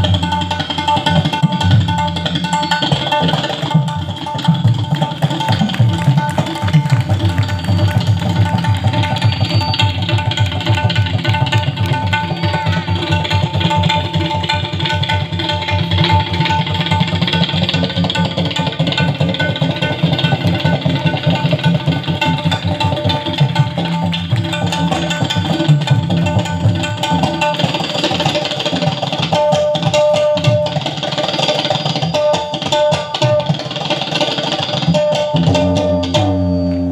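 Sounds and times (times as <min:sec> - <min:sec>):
fast tabla drumming: 0:00.0 - 0:36.9
harmonium melody: 0:35.3 - 0:36.9.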